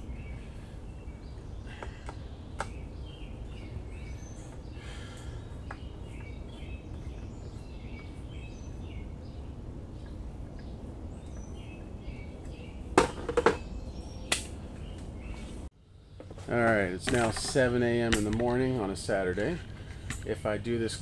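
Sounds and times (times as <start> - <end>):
steady low rumble: 0.0 - 13.0
small birds chirping: 0.0 - 21.0.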